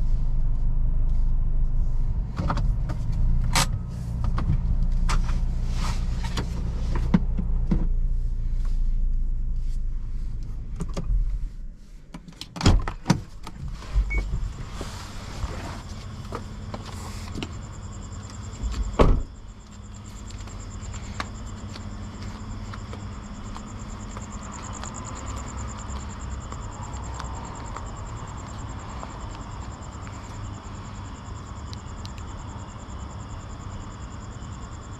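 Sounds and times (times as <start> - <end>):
engine rumble: 0.0 - 34.9
insects chirping: 13.0 - 34.9
heavy thump: 19.0 - 19.3.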